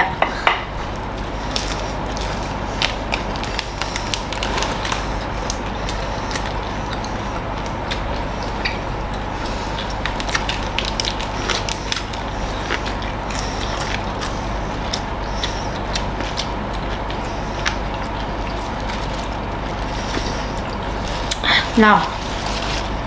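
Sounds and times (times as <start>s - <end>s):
chewing and crunching: 0.8s - 23.0s.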